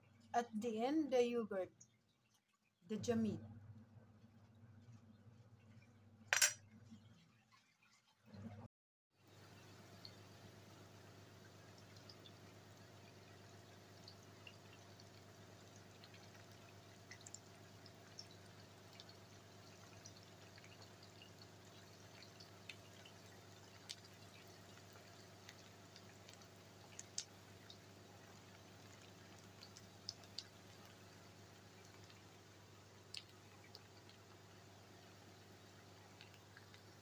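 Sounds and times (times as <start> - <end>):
low steady hum: 2.9 - 7.3
food frying in oil: 4.1 - 8.4, 9.2 - 37.0
oil popping and crackling: 15.8 - 34.7, 35.3 - 37.0.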